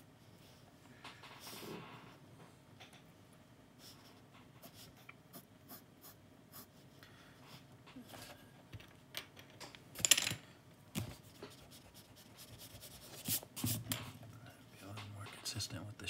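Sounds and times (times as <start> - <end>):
pencil sketching on paper: 11.2 - 13.4.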